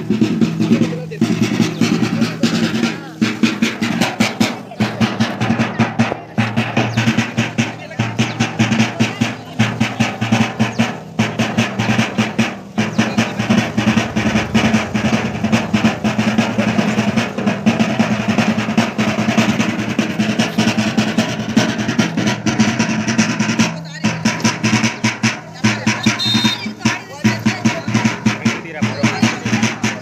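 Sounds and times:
drums beaten fast: 0.0 - 30.0.

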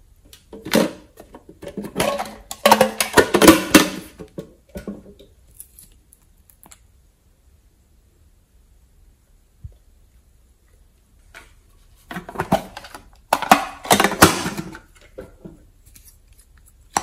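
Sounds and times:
plastic containers clattering: 0.3 - 5.4, 11.3 - 15.7.

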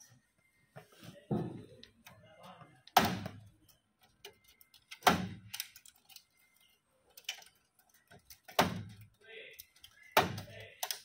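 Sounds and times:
plastic connectors clicking: 3.6 - 11.0.

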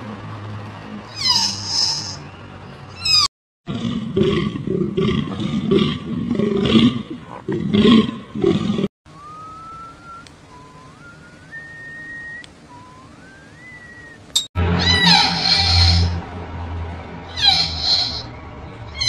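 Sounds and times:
rising whistled notes: 9.1 - 16.2
deer stag roaring: 14.6 - 16.3, 17.2 - 18.3.

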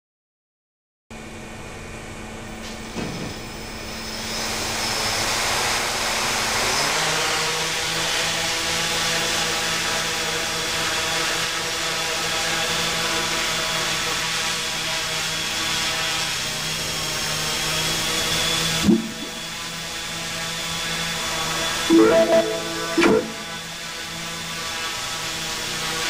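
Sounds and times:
drone propellers buzzing: 18.7 - 19.6.

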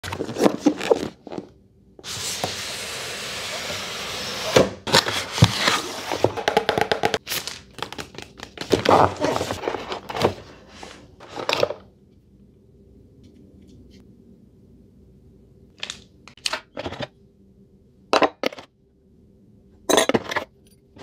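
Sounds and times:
paper crinkling: 7.1 - 11.5.

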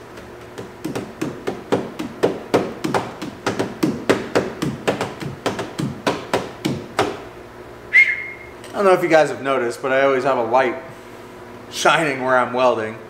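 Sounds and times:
rhythmic sharp taps and knocks: 0.0 - 7.3.

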